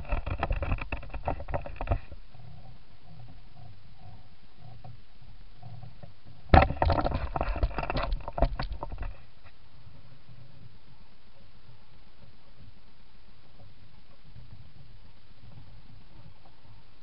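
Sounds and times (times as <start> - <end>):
knocking and rattling: 0.0 - 2.2, 6.5 - 9.2
steady low background noise: 0.0 - 17.0.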